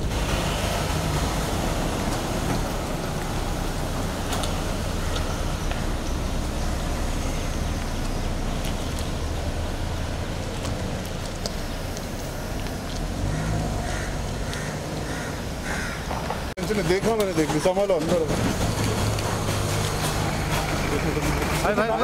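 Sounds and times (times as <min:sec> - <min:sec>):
engine running: 0:00.0 - 0:22.0.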